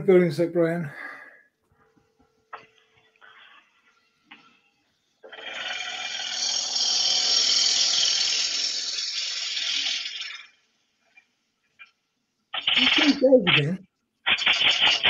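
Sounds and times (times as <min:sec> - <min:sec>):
wood lathe tool cutting hiss: 0:05.3 - 0:10.6.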